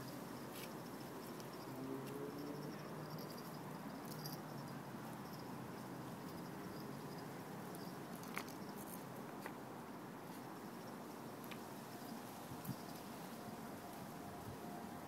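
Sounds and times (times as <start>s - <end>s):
faint background hiss: 0.0s - 15.0s
pebbles clicking under paws: 7.7s - 9.6s.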